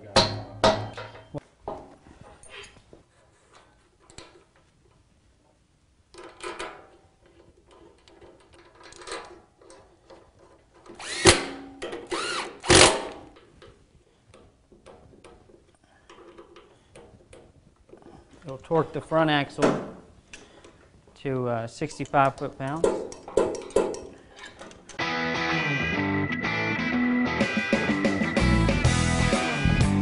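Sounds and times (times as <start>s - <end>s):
power driver spinning: 10.9s - 11.5s, 12.1s - 13.0s.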